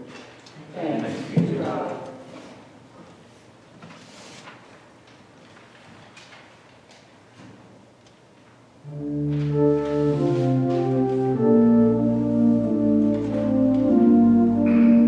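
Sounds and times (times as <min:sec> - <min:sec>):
church organ chords: 0:08.8 - 0:15.0.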